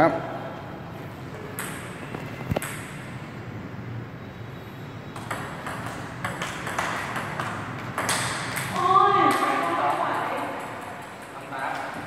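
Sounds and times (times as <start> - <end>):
table tennis ball clicks: 5.2 - 12.0.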